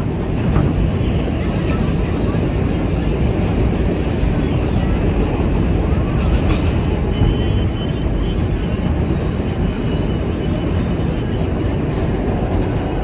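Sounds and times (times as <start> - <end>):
train rumbling: 0.0 - 13.0.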